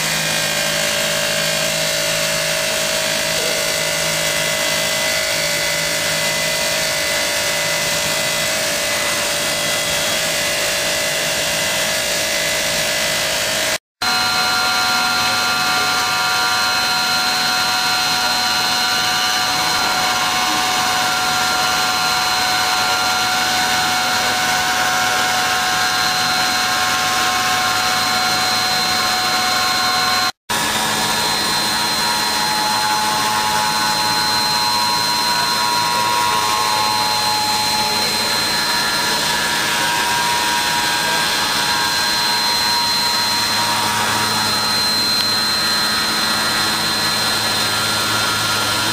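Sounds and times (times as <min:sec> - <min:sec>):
high spindle whine: 0:00.0 - 0:48.9.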